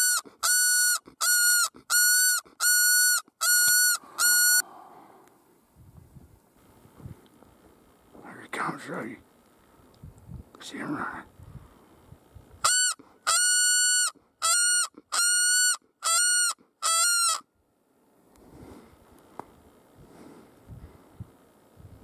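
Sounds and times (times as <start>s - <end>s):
high-pitched predator call blasts: 0.0s - 4.8s, 12.6s - 17.4s.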